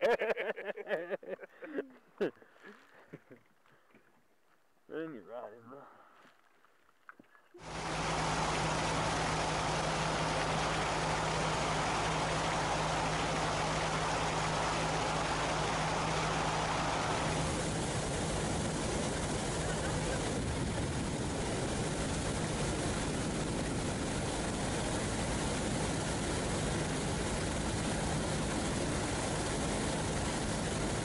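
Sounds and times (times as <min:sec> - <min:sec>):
water rushing along hull: 0:07.1 - 0:31.0
motorboat engine drone: 0:07.6 - 0:31.0.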